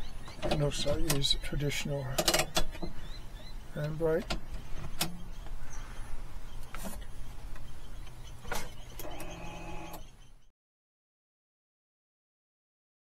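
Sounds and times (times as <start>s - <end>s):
brake caliper motors whining: 8.5s - 10.2s.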